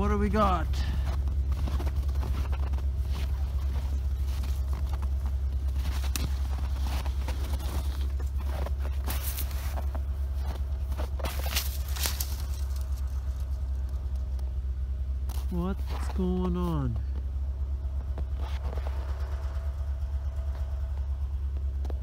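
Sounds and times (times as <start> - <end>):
snowmobile engine idling: 0.0 - 22.0
footsteps crunching in snow: 0.8 - 14.0.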